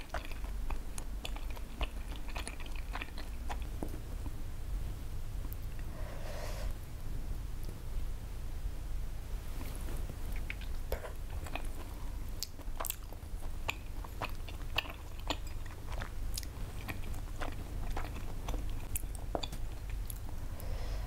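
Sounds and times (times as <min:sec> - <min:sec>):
close chewing of rice cakes: 0:00.0 - 0:04.3, 0:10.1 - 0:20.5
steady low hum: 0:00.0 - 0:21.0.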